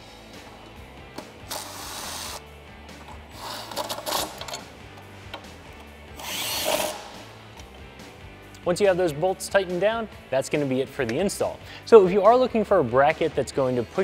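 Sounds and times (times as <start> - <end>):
cordless impact driver running: 6.2 - 7.2.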